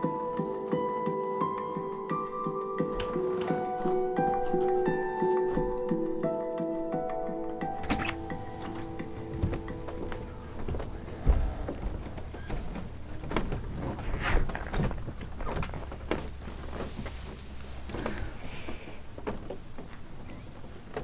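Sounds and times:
footsteps and shuffling: 0.0s - 21.0s
front door shutting: 7.6s - 16.9s
bird chirp: 7.7s - 11.2s.

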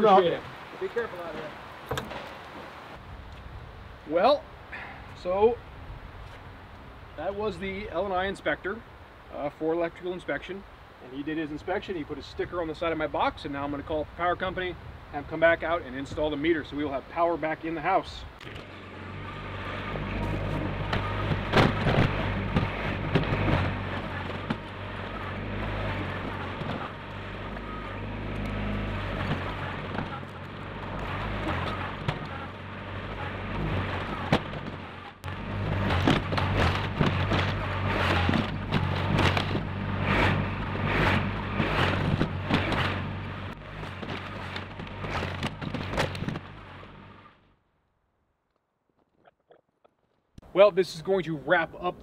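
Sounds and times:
clatter of soil and stones: 15.4s - 47.0s
bucket scraping dirt: 18.4s - 46.9s
tractor engine running: 18.4s - 47.5s.

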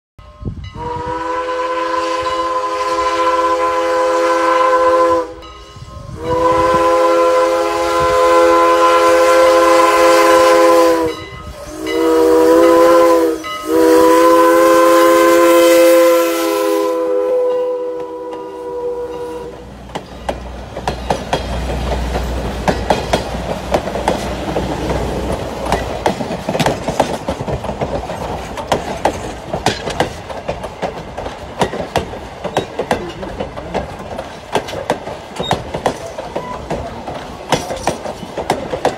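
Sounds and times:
steam locomotive chime whistle: 0.2s - 19.6s
train wheels clickety-clack: 19.2s - 38.9s.

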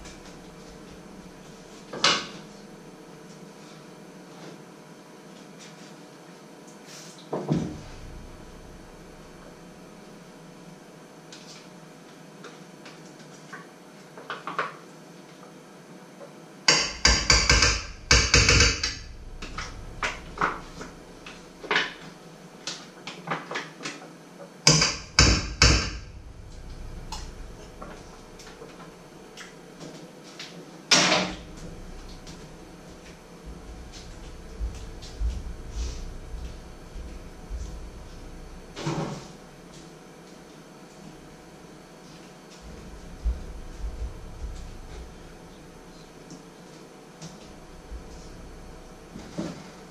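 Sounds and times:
utensils knocking on pot and board: 16.7s - 20.6s, 24.7s - 26.0s.

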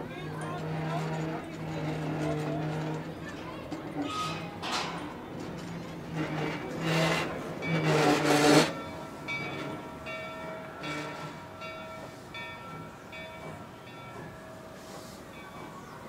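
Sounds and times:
steam locomotive hissing: 10.8s - 16.0s.

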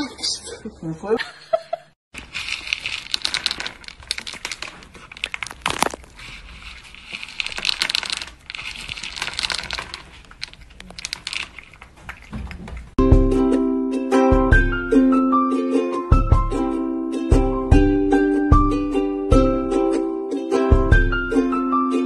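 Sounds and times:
kibble rattling in plastic bowl: 2.2s - 12.9s.

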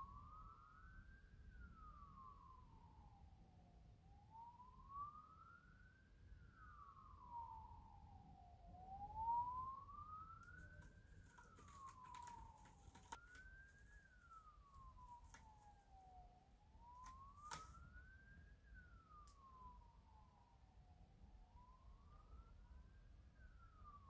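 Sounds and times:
faint siren wailing: 0.0s - 24.0s.

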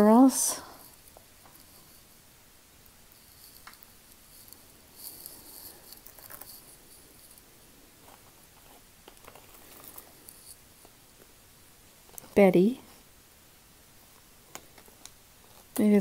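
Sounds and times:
metal and beads clinking: 0.0s - 2.2s, 2.8s - 10.9s
plastic bag rustling: 8.0s - 10.3s.

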